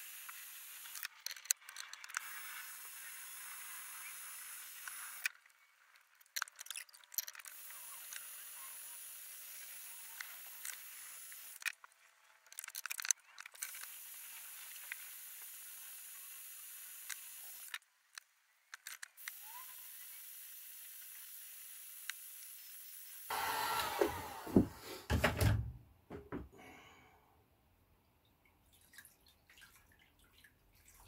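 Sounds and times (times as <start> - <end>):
heat gun blowing hot air: 19.2 - 25.2.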